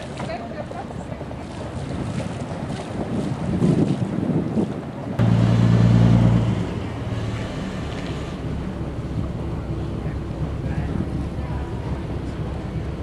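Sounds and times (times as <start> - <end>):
wind noise on microphone: 0.0 - 13.0
boat engine running: 5.0 - 13.0
low engine hum: 5.1 - 13.0.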